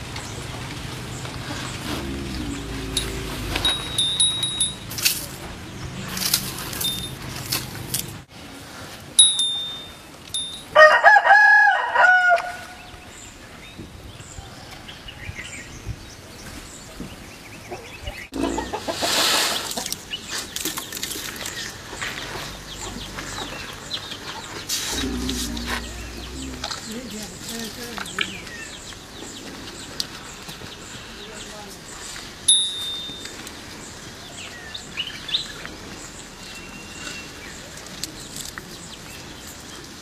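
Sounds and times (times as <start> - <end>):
background noise: 0.0 - 40.0
animal call: 1.5 - 4.0, 24.7 - 27.2.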